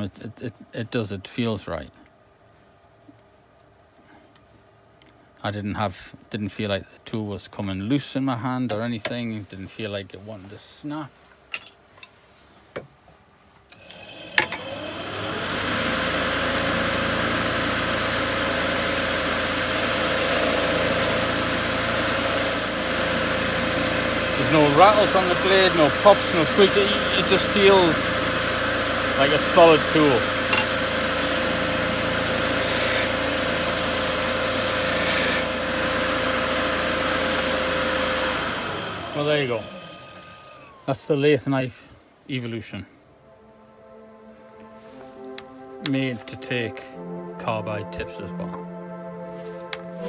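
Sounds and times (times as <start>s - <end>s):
lathe knife scraping wood: 13.7s - 40.8s
electric wood lathe running: 13.7s - 40.9s.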